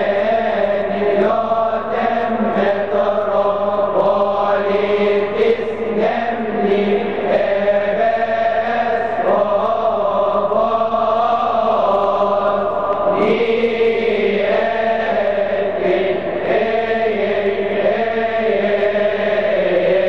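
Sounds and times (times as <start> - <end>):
male choir chanting a hymn: 0.0 - 20.0.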